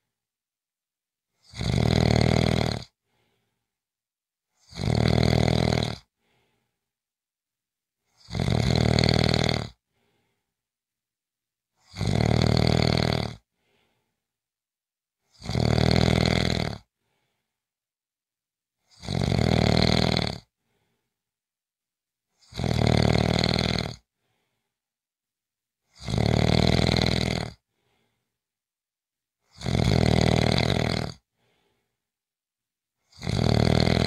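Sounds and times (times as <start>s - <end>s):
person snoring: 1.4s - 3.0s, 4.6s - 6.4s, 8.1s - 9.8s, 11.8s - 14.0s, 15.3s - 16.9s, 18.8s - 20.8s, 22.3s - 24.1s, 25.9s - 28.1s, 29.4s - 31.7s, 33.0s - 34.0s
faint breathing: 3.0s - 3.8s, 6.2s - 6.9s, 9.9s - 10.6s, 13.5s - 14.3s, 17.0s - 17.6s, 20.6s - 21.2s, 24.1s - 24.8s, 27.7s - 28.4s, 31.3s - 32.1s.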